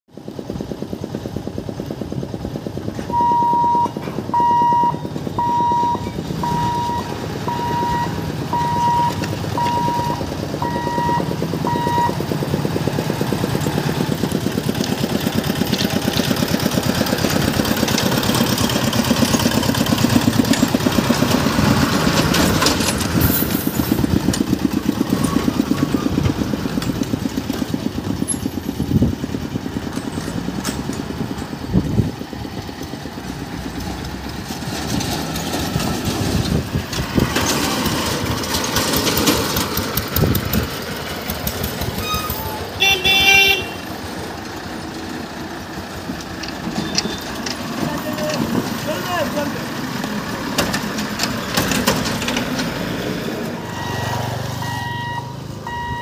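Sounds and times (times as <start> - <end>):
vehicle engines passing: 0.1 - 56.0
short electronic beeps: 3.2 - 12.2, 53.6 - 56.0.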